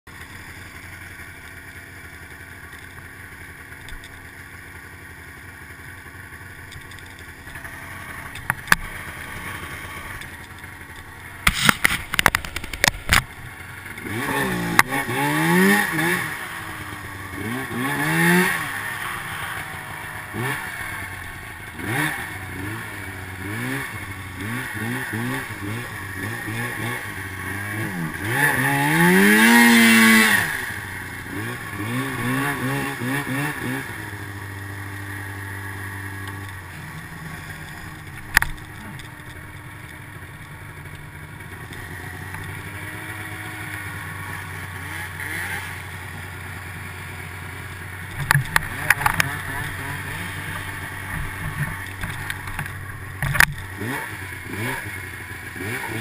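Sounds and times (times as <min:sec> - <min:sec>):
snowmobile engine revving: 0:04.5 - 0:56.0
sharp click: 0:11.4 - 0:13.4.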